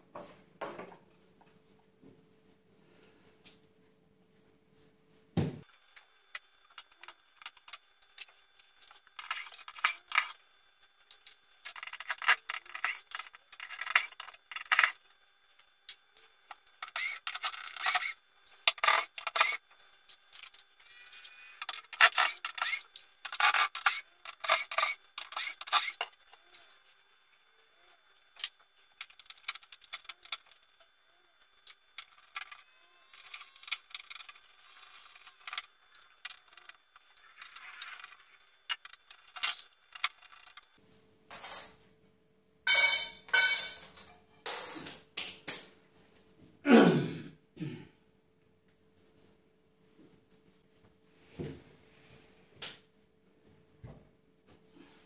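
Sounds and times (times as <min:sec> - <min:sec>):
knocks of wardrobe being dismantled: 0:05.4 - 0:05.6.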